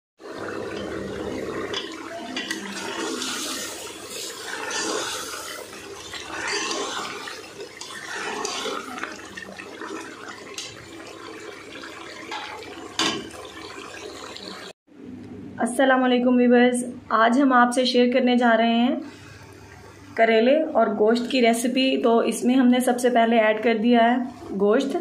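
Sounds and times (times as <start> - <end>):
curry sizzling in a pot: 0.2 - 14.8
metal spatula scraping pot: 1.6 - 10.8.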